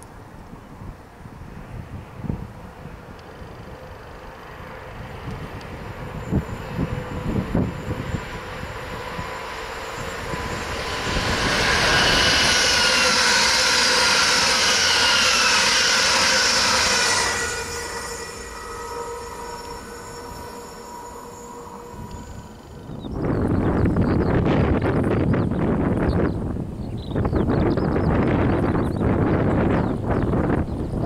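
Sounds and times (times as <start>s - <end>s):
train wheels rushing on rail: 0.0s - 26.7s
falling whines: 3.4s - 25.3s.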